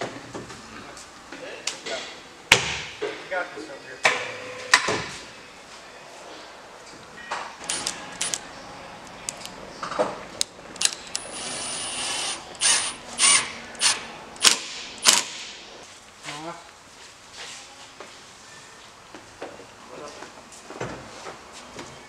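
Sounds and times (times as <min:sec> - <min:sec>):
cordless drill motor: 0:11.4 - 0:14.0.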